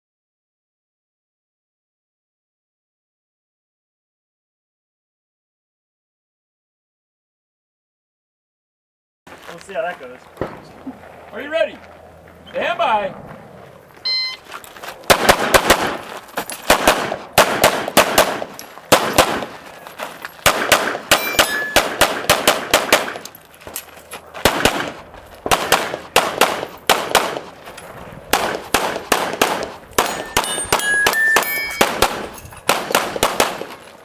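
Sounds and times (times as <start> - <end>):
short ringing tones: 14.0 - 14.6, 21.1 - 22.0, 30.0 - 32.7
pistol shots: 15.1 - 19.6, 20.4 - 23.3, 24.4 - 27.6, 28.3 - 33.9.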